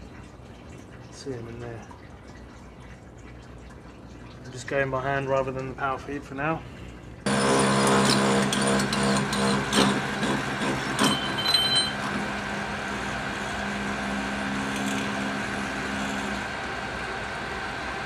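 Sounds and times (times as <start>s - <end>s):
metal lathe running: 7.3s - 18.0s
high squeal: 11.0s - 12.1s.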